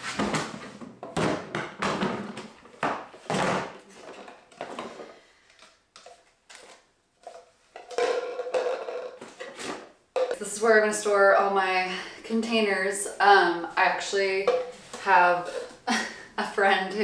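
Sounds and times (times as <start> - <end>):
plastic totes knocking: 0.1 - 5.1, 7.8 - 10.4
jars clinking and clattering: 4.0 - 10.6.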